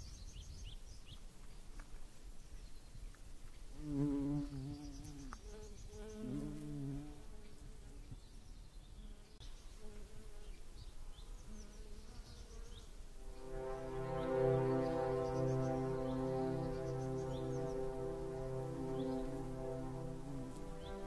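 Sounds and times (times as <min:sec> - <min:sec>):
insect buzzing: 0:03.8 - 0:08.2, 0:08.9 - 0:21.0
music: 0:13.2 - 0:21.0.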